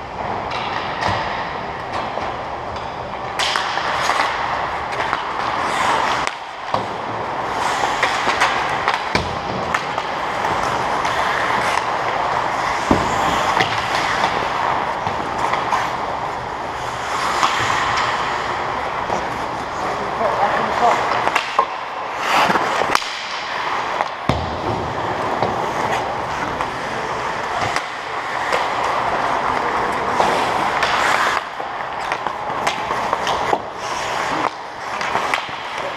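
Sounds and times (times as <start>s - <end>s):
hockey sticks and puck clacking: 0.0s - 35.9s
skate blades scraping ice: 0.2s - 35.9s.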